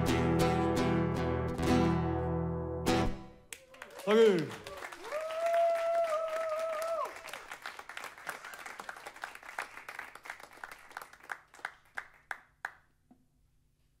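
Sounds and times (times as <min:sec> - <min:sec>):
audience applauding: 0:03.5 - 0:12.8.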